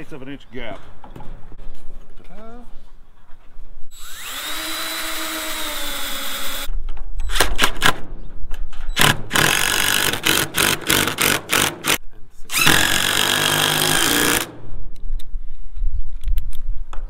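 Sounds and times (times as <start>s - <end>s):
cordless drill driving screws: 3.9s - 6.7s, 9.0s - 14.5s.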